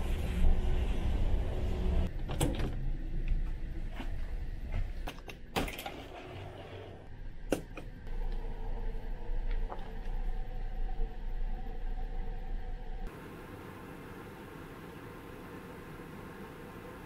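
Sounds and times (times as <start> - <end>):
ship's low hum: 7.0 - 17.0.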